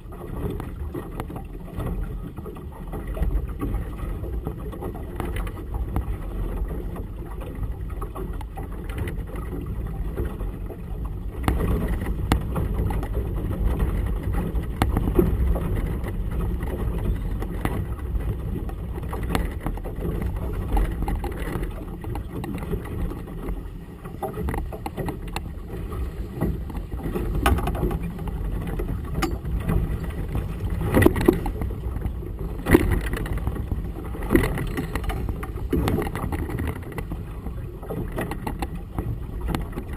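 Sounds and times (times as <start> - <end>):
choppy water: 0.0 - 39.9
waves knocking against hull: 0.0 - 39.9
wind rumble: 9.4 - 39.9.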